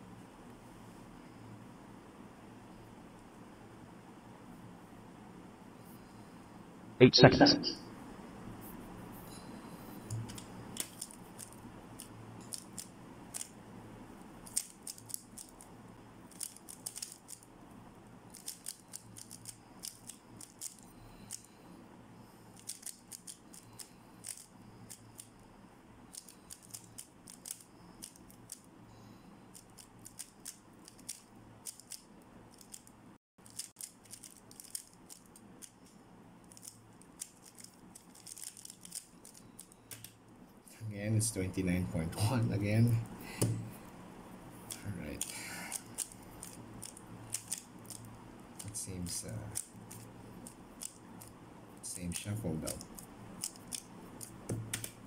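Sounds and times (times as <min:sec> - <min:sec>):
puzzle cube plastic clicks: 0:16.3 - 0:17.4, 0:36.5 - 0:40.1, 0:44.7 - 0:48.7.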